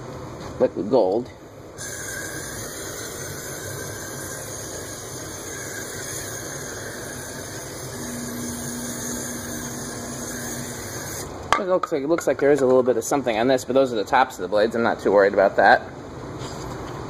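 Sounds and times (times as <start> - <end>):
aerosol can spraying hiss: 1.8 - 11.3.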